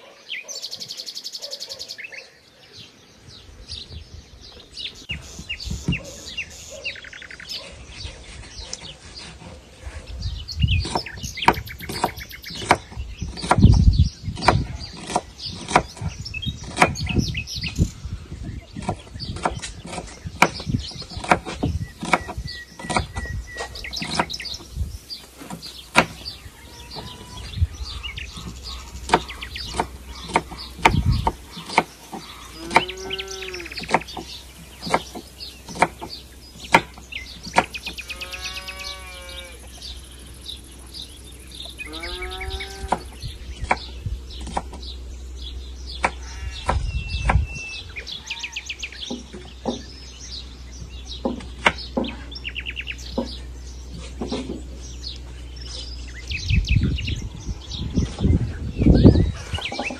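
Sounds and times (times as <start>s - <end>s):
birds chirping: 0.0s - 59.9s
bleating calls: 26.3s - 28.1s, 32.3s - 33.9s, 37.9s - 39.8s, 41.8s - 43.1s, 46.2s - 46.7s.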